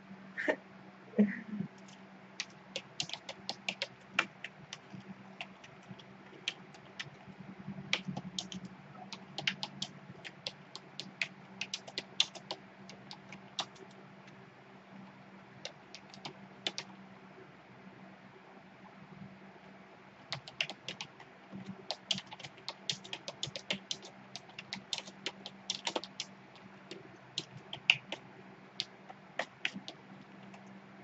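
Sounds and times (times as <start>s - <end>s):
keyboard keystroke clicks: 1.8s - 7.2s, 7.9s - 13.8s, 15.6s - 16.9s, 20.3s - 21.1s, 21.7s - 26.3s, 28.8s - 30.6s.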